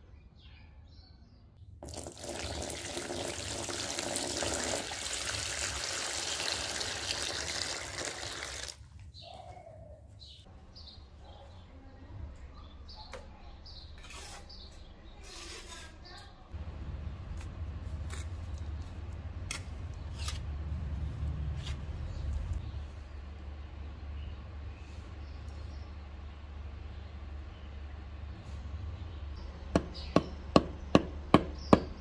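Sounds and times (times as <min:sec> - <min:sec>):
water running: 0:01.8 - 0:08.8
small birds chirping: 0:09.0 - 0:16.6, 0:22.0 - 0:32.0.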